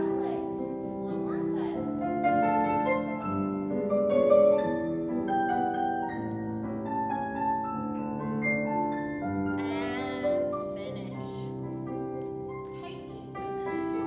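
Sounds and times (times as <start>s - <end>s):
solo piano melody over chords: 0.0s - 14.0s.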